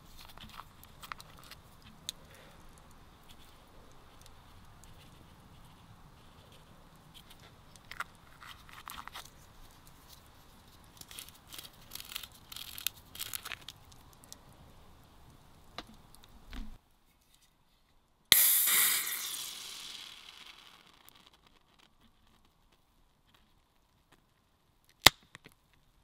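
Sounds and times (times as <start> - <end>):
fizzing hiss of gas: 18.3 - 21.0.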